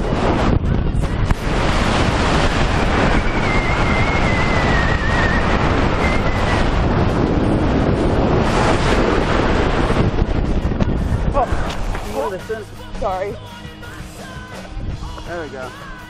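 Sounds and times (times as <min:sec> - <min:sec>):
wind buffeting microphone: 0:00.0 - 0:13.4, 0:14.7 - 0:15.7
thin wavering whistle: 0:02.8 - 0:06.7.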